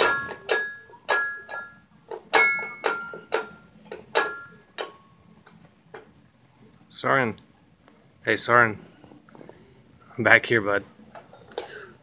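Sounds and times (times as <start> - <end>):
toy piano notes ringing: 0.0 - 5.2.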